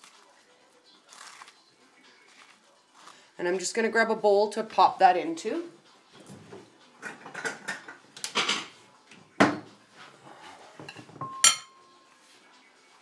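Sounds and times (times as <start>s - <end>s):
dishes knocking and rattling: 7.0s - 8.7s, 9.4s - 9.7s, 10.8s - 11.7s
dish clatter with ringing: 10.9s - 11.8s.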